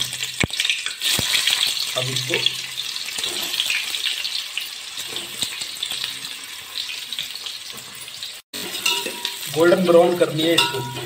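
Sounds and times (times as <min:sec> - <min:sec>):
onions sizzling in hot oil: 0:00.0 - 0:11.0.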